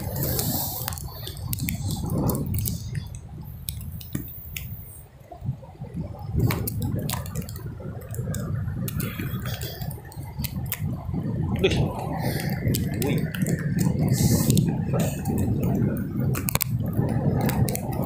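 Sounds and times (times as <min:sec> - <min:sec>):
wind and surf rumble: 0:00.0 - 0:18.0.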